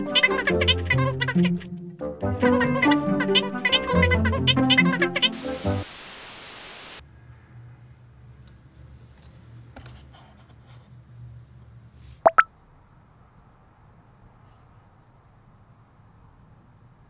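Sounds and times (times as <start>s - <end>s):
static-like hiss: 5.1s - 7.0s.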